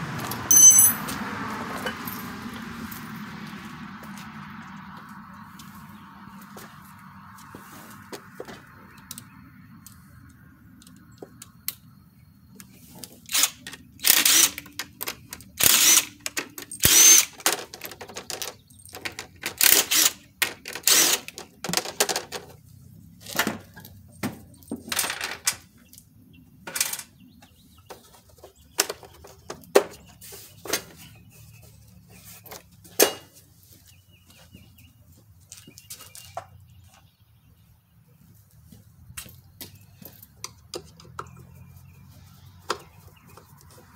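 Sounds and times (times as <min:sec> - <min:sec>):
cordless drill bursts: 0:13.3 - 0:14.6, 0:15.6 - 0:16.2, 0:16.8 - 0:17.4, 0:19.6 - 0:20.2, 0:20.8 - 0:21.4.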